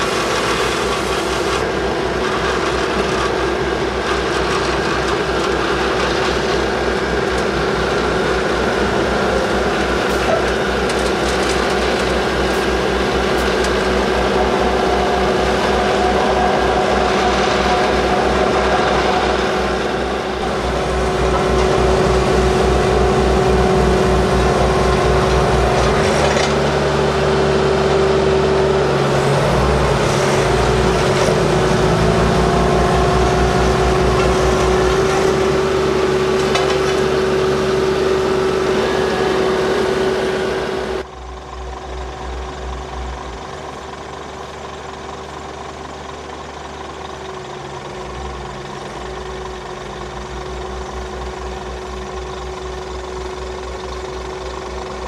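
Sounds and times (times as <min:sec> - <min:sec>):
steady machine whine: 0:00.0 - 0:46.4
heavy diesel engines running: 0:00.0 - 0:55.0.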